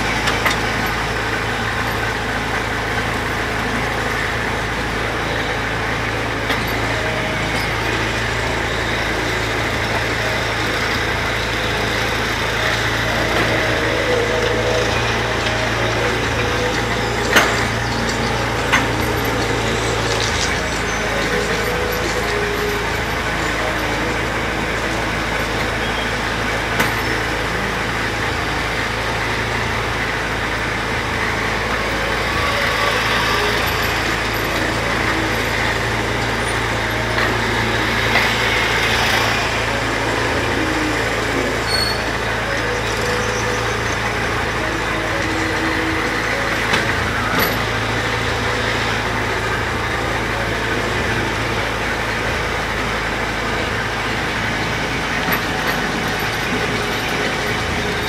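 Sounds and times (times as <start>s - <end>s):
ride car humming and rattling: 0.0s - 58.0s.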